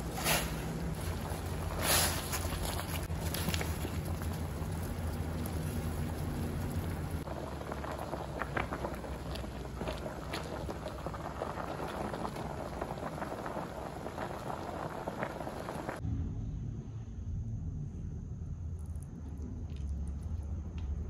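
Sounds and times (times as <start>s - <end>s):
water boiling in a pot: 0.0s - 16.0s
low hum: 11.3s - 21.0s.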